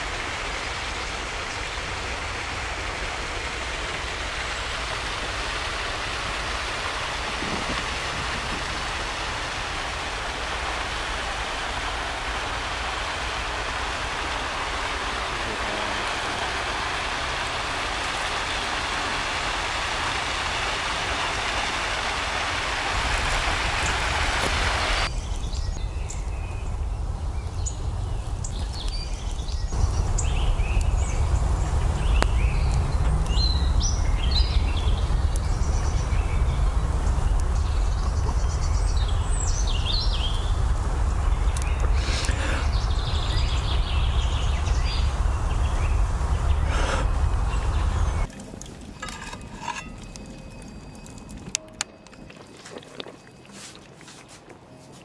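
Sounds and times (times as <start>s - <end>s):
river rushing over stones: 0.0s - 25.1s
low rumble: 0.0s - 48.3s
birds chirping: 0.0s - 55.0s.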